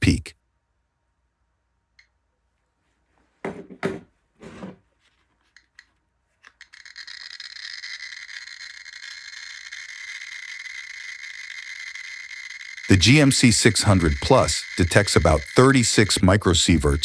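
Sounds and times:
geiger counter crackling: 5.5 - 17.0.

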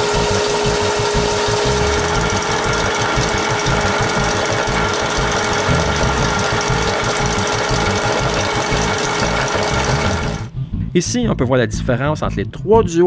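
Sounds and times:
belt sander motor humming: 0.0 - 10.5
cordless drill spinning: 0.0 - 10.5.

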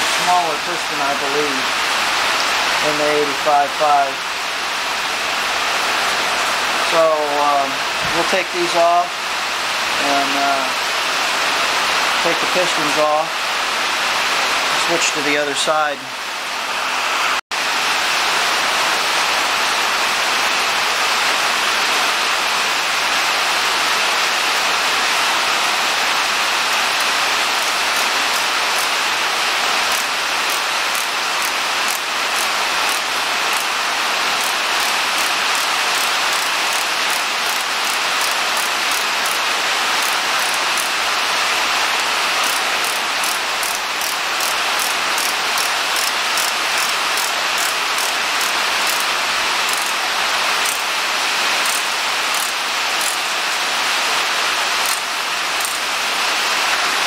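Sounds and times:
heavy rain: 0.0 - 57.0
faint regular ticking: 29.9 - 33.7, 34.4 - 39.4, 40.0 - 40.9, 42.4 - 49.1, 49.7 - 50.0, 51.6 - 53.2, 54.8 - 55.0, 55.6 - 55.8.

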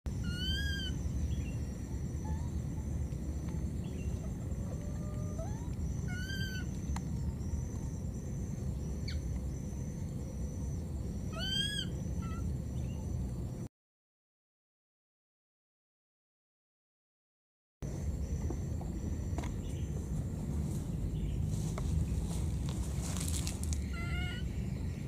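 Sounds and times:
steady low rumble: 0.1 - 13.7, 17.8 - 25.0
baby monkey high calls: 0.2 - 1.0, 4.0 - 7.6, 11.2 - 12.5, 23.8 - 24.6.

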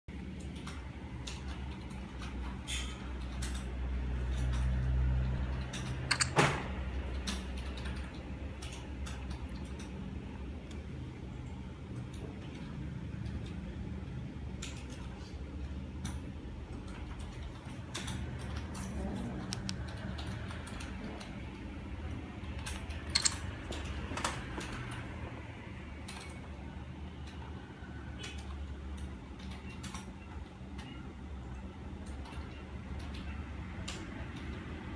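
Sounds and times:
hand handling camera clicks: 6.1 - 6.3, 23.1 - 23.3
phone handling clicks and taps: 6.1 - 6.4.

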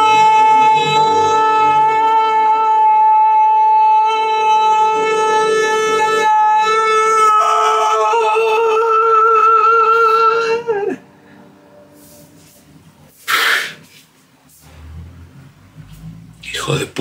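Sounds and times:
man singing sustained notes: 0.0 - 11.8.

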